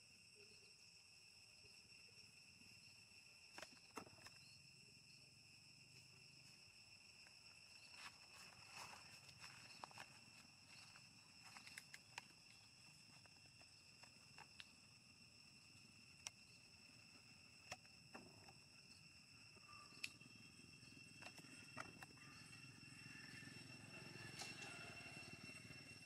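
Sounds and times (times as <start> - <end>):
high-pitched insect drone: 0.0 - 26.0
small clicks and rustles: 8.4 - 14.7.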